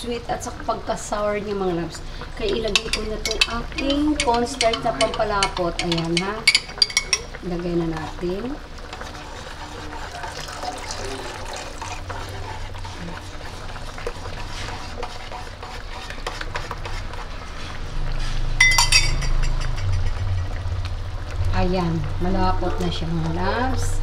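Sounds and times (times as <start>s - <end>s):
spoon scraping and tapping a pan: 2.4s - 7.4s, 13.0s - 17.2s, 18.6s - 20.4s
spoon stirring sauce: 2.4s - 20.2s
sharp metallic clink: 18.6s - 19.9s.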